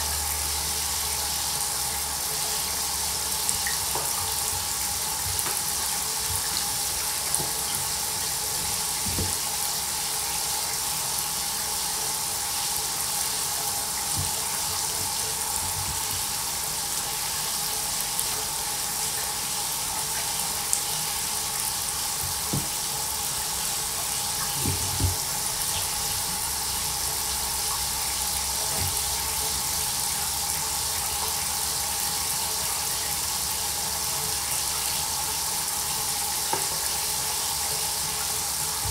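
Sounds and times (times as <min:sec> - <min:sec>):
water running into a bathtub: 0:00.0 - 0:38.9
soft knocks: 0:22.4 - 0:22.8.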